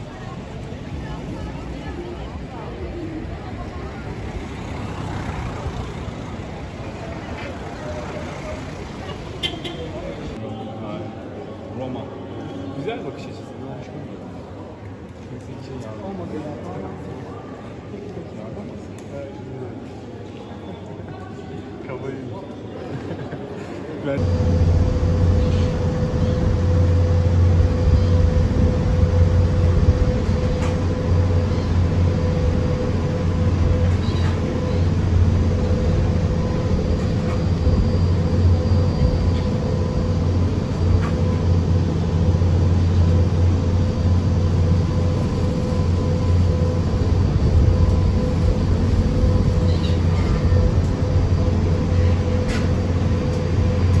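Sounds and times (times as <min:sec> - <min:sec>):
ship engines rumbling: 0:00.0 - 0:10.4, 0:24.2 - 0:54.0.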